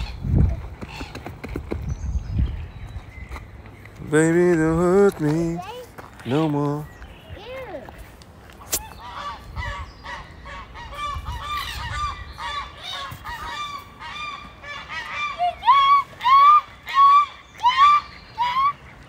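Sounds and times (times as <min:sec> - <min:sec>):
geese honking: 0:08.8 - 0:19.0.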